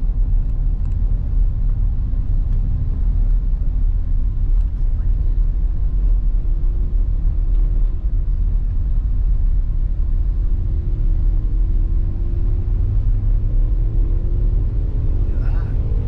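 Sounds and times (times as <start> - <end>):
road and engine rumble: 0.0 - 16.0
faint rising engine tone: 10.6 - 16.0.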